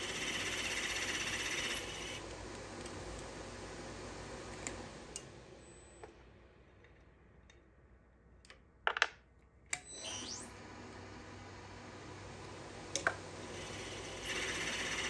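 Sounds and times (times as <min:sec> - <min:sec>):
milling machine spindle running: 0:00.0 - 0:05.0, 0:10.1 - 0:15.0.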